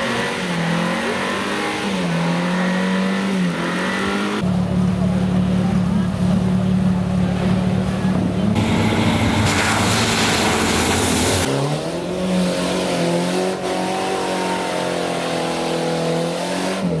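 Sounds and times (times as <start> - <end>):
engine held at high revs: 0.0 - 17.0
off-road engine revving: 0.0 - 17.0
mud and water spraying: 7.4 - 11.5.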